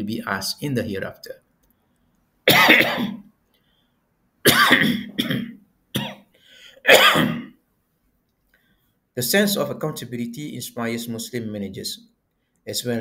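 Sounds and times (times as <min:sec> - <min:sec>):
man coughing: 0:02.5 - 0:03.2, 0:04.4 - 0:06.2, 0:06.8 - 0:07.6.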